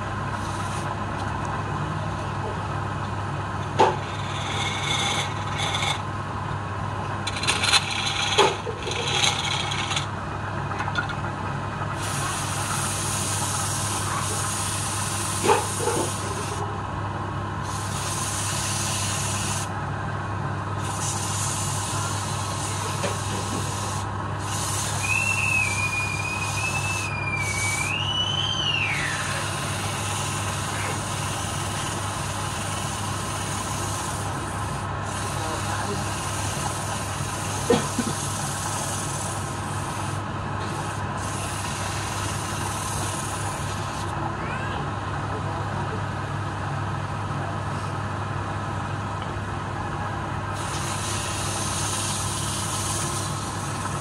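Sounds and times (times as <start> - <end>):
wood lathe motor running: 3.5 - 6.2, 7.1 - 10.3, 20.8 - 44.1, 50.6 - 54.0
turning tool scraping wood: 3.8 - 6.0, 7.3 - 10.1
hand rubbing spinning wood: 4.0 - 6.0, 7.3 - 10.1
high wavering whistle-like tone: 24.9 - 29.5.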